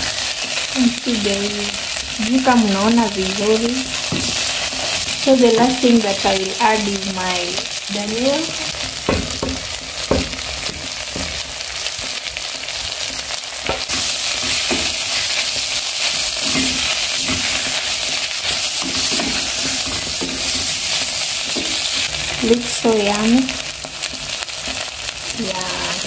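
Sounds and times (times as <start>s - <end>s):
fish sizzling in a pot: 0.0s - 26.0s
wooden spoon knocking pot: 8.8s - 11.4s.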